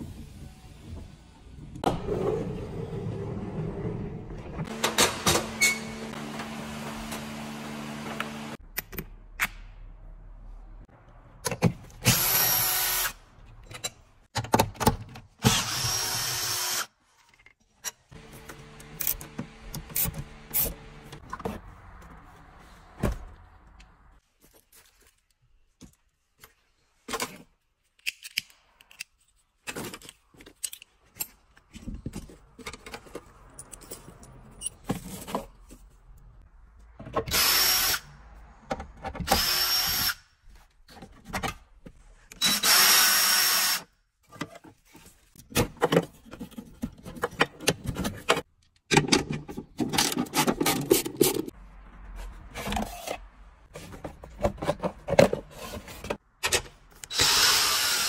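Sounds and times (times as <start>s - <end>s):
cordless drill running: 57.1s - 58.0s.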